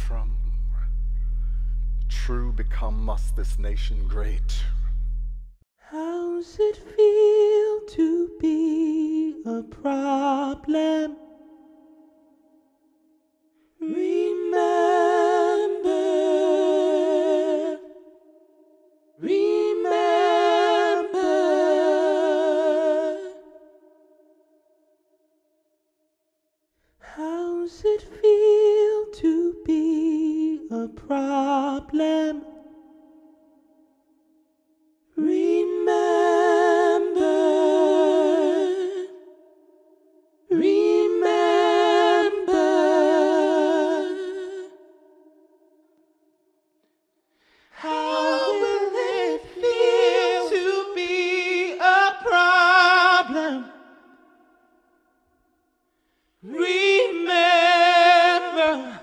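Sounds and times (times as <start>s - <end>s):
wordless singing with vibrato: 0.0s - 5.2s, 5.8s - 24.9s, 27.0s - 46.3s, 47.3s - 59.0s
low held drone note: 0.0s - 5.5s.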